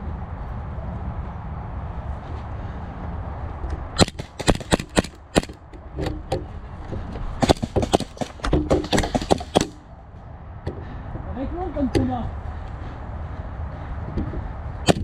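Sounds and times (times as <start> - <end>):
low rumble: 0.0 - 7.5
airsoft gun shots: 4.0 - 5.6, 7.4 - 9.8.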